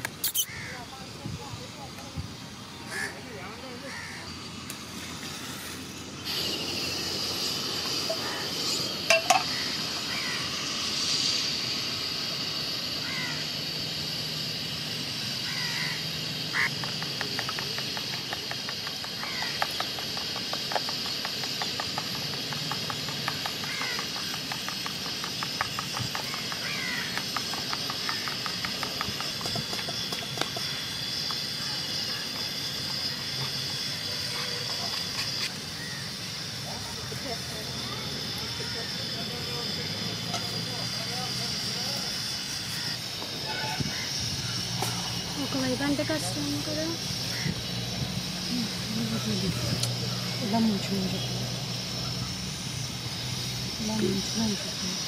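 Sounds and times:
steady hiss: 0:00.0 - 0:55.0
bird calls: 0:00.2 - 0:00.9, 0:15.4 - 0:21.8, 0:26.0 - 0:29.0.

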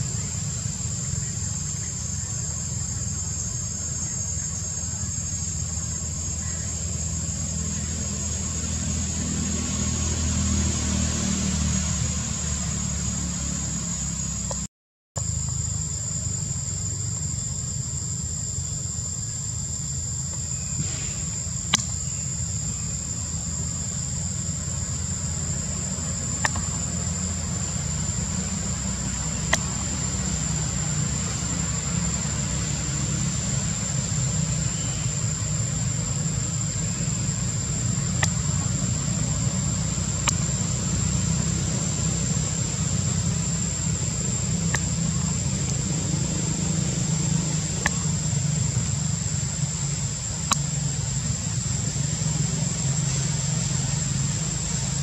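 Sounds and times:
high-pitched insect drone: 0:00.0 - 0:55.0
low rumble: 0:15.3 - 0:55.0.

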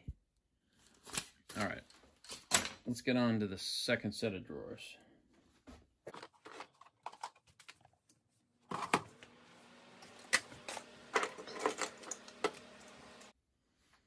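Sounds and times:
tools and plastic boxes clattering: 0:06.1 - 0:07.8, 0:10.3 - 0:12.7.

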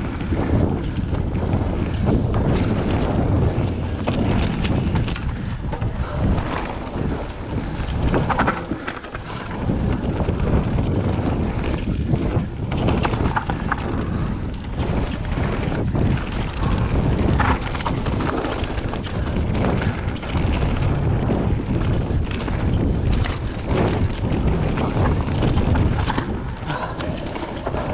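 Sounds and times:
bike rattling over bumps: 0:00.0 - 0:27.9
wind buffeting microphone: 0:00.0 - 0:27.9.

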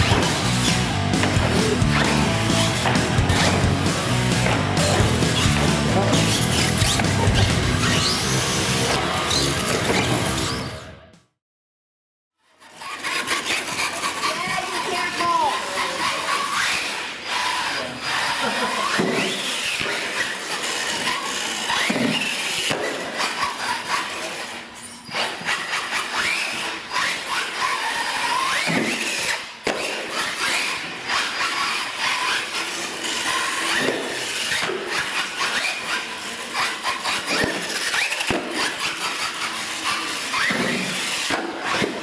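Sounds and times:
sharp thumps: 0:00.0 - 0:08.0
electric toy motor whining: 0:00.0 - 0:10.9, 0:12.4 - 0:42.0
tyres scrabbling on concrete: 0:12.7 - 0:42.0.

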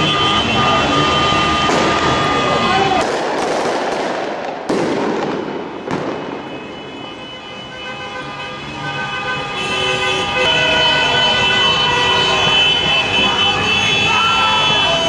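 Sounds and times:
car horns honking: 0:00.0 - 0:03.1, 0:05.6 - 0:15.0
firework bang: 0:01.6 - 0:02.1, 0:03.0 - 0:06.7.

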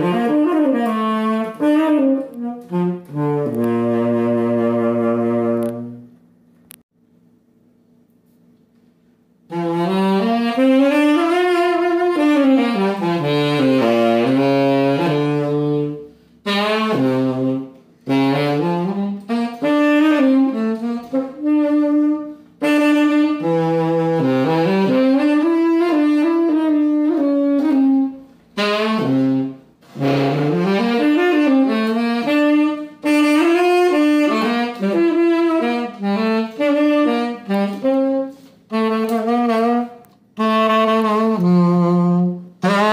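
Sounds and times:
solo tenor saxophone melody: 0:00.0 - 0:06.2, 0:09.4 - 0:42.9.

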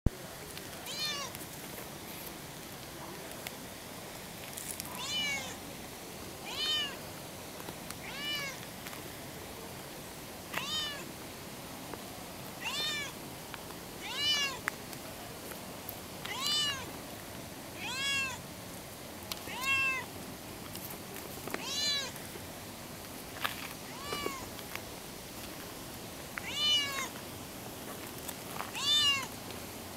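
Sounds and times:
cat meowing: 0:00.8 - 0:01.4, 0:04.9 - 0:05.6, 0:06.4 - 0:07.0, 0:08.0 - 0:08.6, 0:10.5 - 0:11.1, 0:12.6 - 0:13.1, 0:14.0 - 0:14.6, 0:16.3 - 0:16.9, 0:17.8 - 0:18.4, 0:19.5 - 0:20.1, 0:21.6 - 0:22.1, 0:23.9 - 0:24.4, 0:26.4 - 0:27.1, 0:28.7 - 0:29.3.

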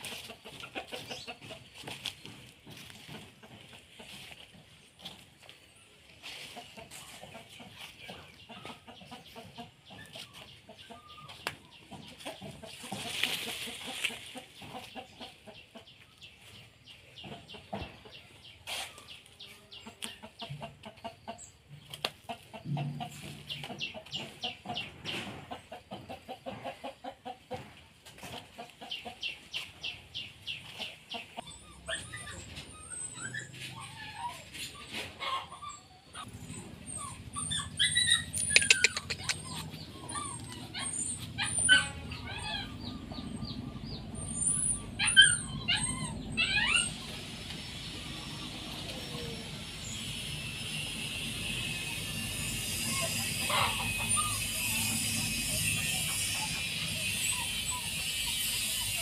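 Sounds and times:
footsteps on dry leaves: 0:00.0 - 0:08.0, 0:12.7 - 0:14.5
chickens clucking: 0:00.0 - 0:59.0.

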